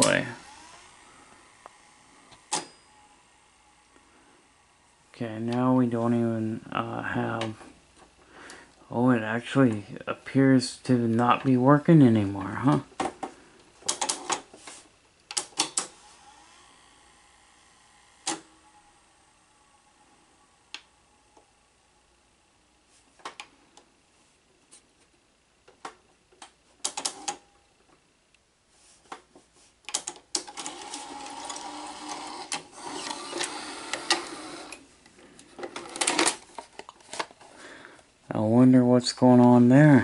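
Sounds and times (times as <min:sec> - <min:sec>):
motor whirring: 0:00.0 - 0:05.0, 0:15.9 - 0:22.0, 0:30.5 - 0:34.9
tape machine mechanism clicks: 0:02.3 - 0:03.2, 0:13.8 - 0:14.4, 0:15.3 - 0:16.4, 0:18.2 - 0:18.8, 0:26.8 - 0:27.4, 0:29.9 - 0:34.9, 0:35.6 - 0:37.4.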